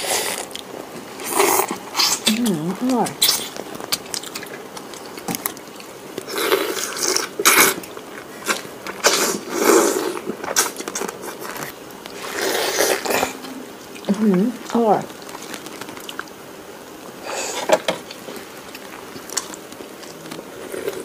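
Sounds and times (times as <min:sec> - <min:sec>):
biting and chewing: 0:00.4 - 0:21.0
slurping broth: 0:08.4 - 0:11.4, 0:12.2 - 0:13.4.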